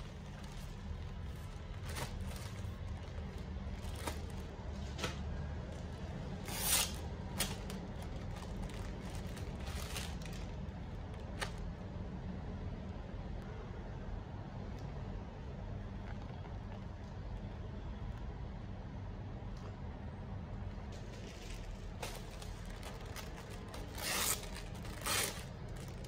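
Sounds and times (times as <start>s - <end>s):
plastic packaging crinkling: 0.0s - 5.0s, 6.1s - 11.7s, 21.0s - 26.0s
low steady hum: 0.0s - 26.0s.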